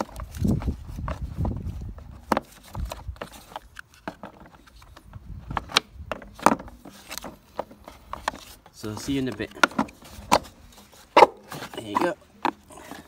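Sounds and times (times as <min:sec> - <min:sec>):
plastic clicks and knocks: 0:09.0 - 0:10.5.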